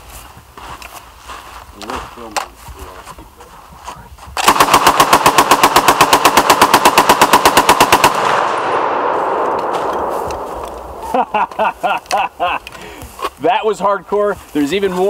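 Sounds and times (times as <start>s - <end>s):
automatic rifle burst: 4.4s - 12.1s.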